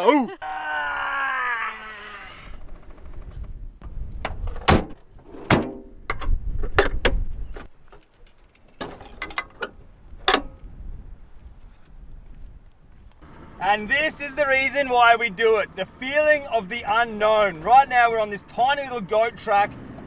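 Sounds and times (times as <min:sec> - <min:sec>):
car doors and latches clunking: 0:08.7 - 0:10.6.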